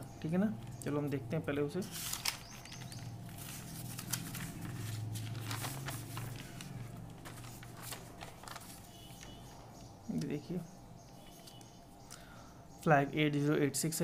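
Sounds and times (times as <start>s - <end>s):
low steady hum: 0.0s - 14.0s
paper pages rustling: 1.8s - 9.7s.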